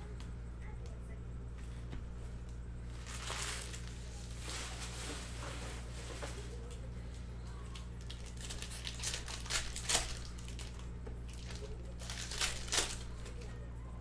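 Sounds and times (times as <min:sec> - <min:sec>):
steady low hum: 0:00.0 - 0:14.0
card pack wrappers tearing: 0:02.9 - 0:05.4, 0:07.8 - 0:13.5.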